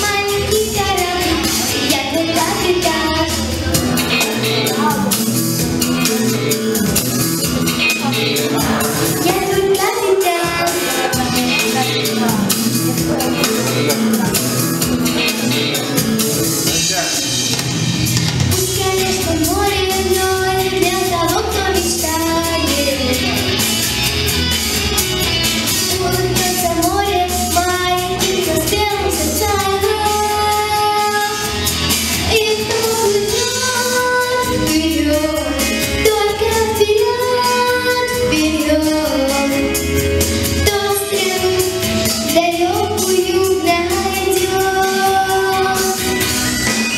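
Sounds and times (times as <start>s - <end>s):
girl singing into a microphone: 0.0s - 5.2s, 8.0s - 12.4s, 18.5s - 23.4s, 25.9s - 39.8s, 40.4s - 46.2s
instrumental music with steady beat: 0.0s - 46.9s.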